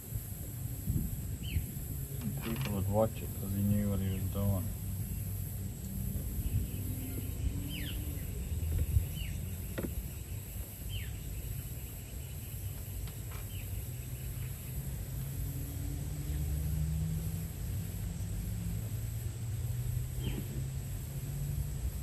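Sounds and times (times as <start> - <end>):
low rumble: 0.0 - 11.4
insect trill: 0.0 - 22.0.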